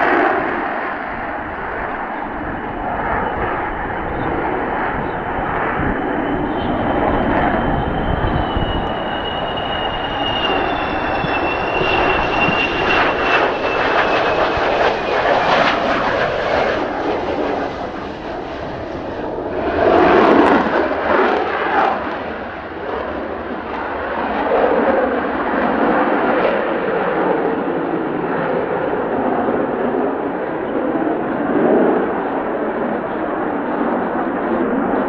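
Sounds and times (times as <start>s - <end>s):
jet engine roar: 0.0s - 35.0s
high whine sliding down: 5.7s - 15.8s.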